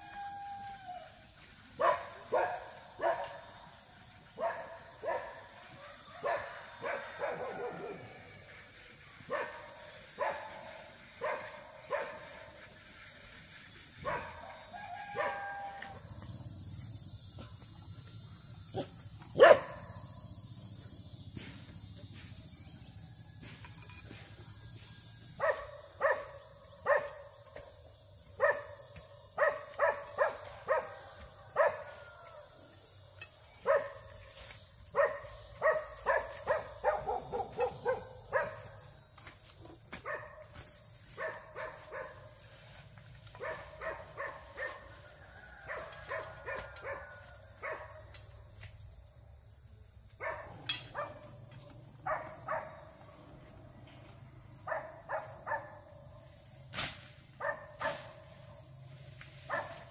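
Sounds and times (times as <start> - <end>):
dog barking: 1.8 - 3.5, 4.4 - 8.1, 9.3 - 12.4, 14.0 - 15.6, 18.8 - 19.9, 25.4 - 27.3, 28.4 - 28.8, 29.4 - 31.0, 31.6 - 31.9, 33.6 - 34.1, 34.9 - 38.8, 40.0 - 40.5, 41.2 - 42.2, 43.3 - 44.9, 45.6 - 48.1, 50.2 - 51.3, 52.0 - 52.9, 54.6 - 55.8, 57.4 - 58.0, 59.5 - 59.9.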